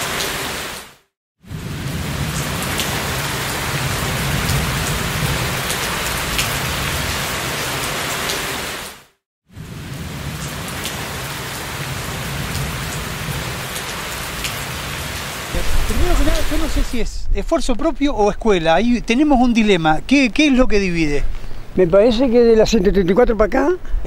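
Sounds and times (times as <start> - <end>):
steady rain falling: 0.0 - 0.9, 1.5 - 17.1.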